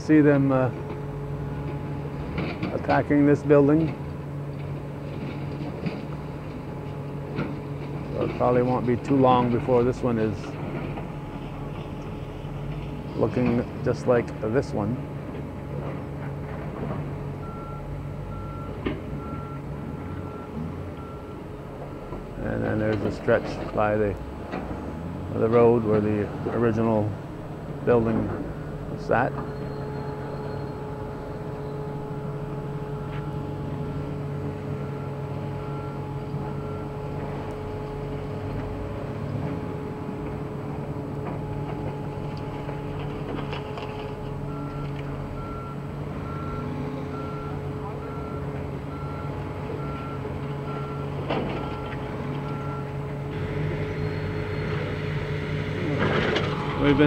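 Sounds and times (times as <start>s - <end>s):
diesel engine running: 0.0s - 57.0s
backup alarm beeping: 17.4s - 22.3s, 27.8s - 38.4s, 44.3s - 53.1s.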